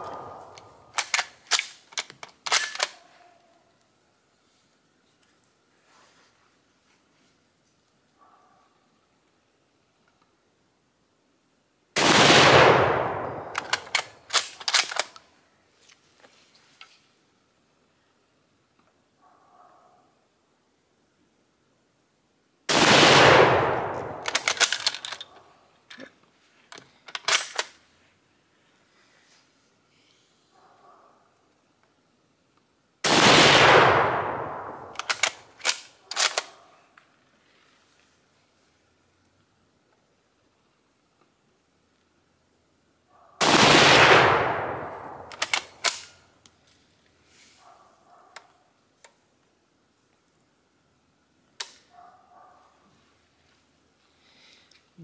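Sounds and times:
rifle shot: 0.0s - 1.8s, 12.0s - 14.8s, 22.7s - 24.8s, 33.0s - 36.6s, 43.4s - 46.1s
rifle bolt clicking: 13.5s - 15.2s, 24.0s - 25.3s, 34.2s - 36.6s, 45.0s - 46.1s.

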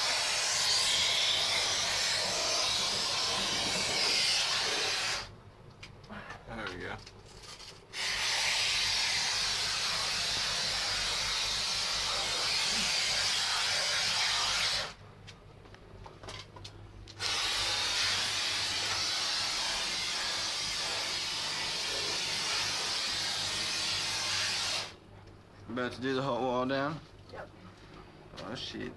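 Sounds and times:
spray foam gun hissing: 0.0s - 5.3s, 7.9s - 15.0s, 17.2s - 25.0s.

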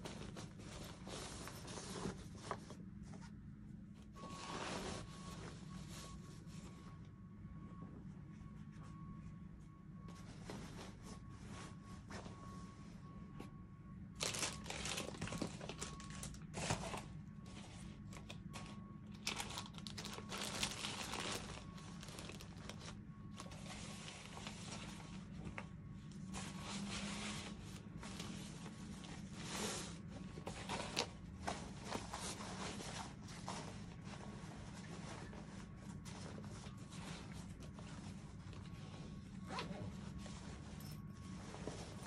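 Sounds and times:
fabric rustling: 0.0s - 3.4s, 4.1s - 6.9s, 19.3s - 42.0s
plastic bag crinkling: 14.2s - 17.0s, 19.1s - 22.9s.

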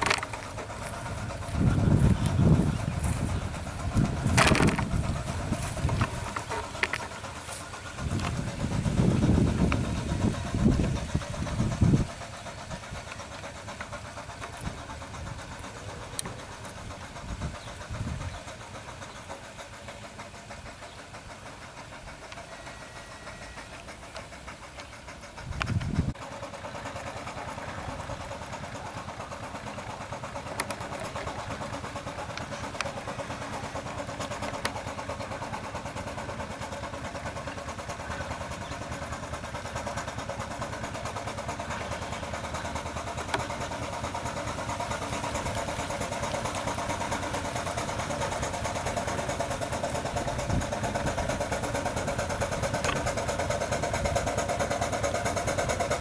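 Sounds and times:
loud low rumbles: 0.0s - 7.2s, 7.8s - 13.2s
steam traction engine running: 0.0s - 56.0s.

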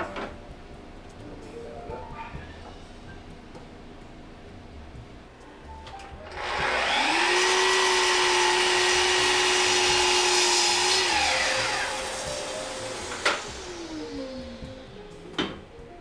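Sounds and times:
miter saw motor whine: 6.3s - 15.0s.

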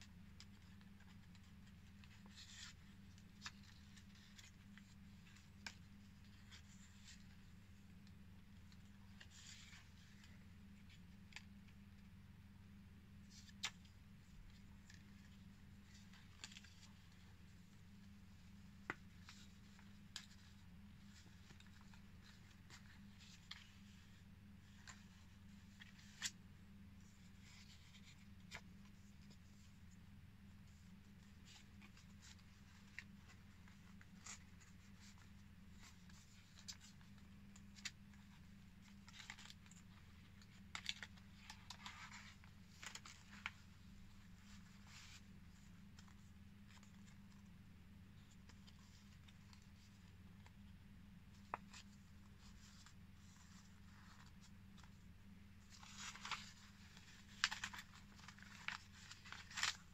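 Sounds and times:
paper pages rustling: 0.0s - 12.1s, 13.2s - 59.9s
low steady hum: 0.0s - 59.9s.

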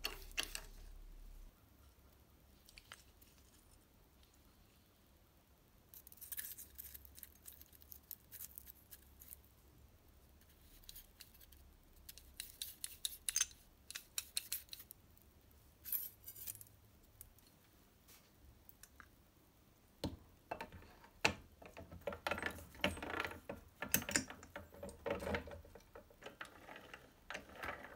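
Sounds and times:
metal parts clicking and scraping: 10.7s - 15.0s, 15.8s - 17.4s, 20.5s - 27.9s.

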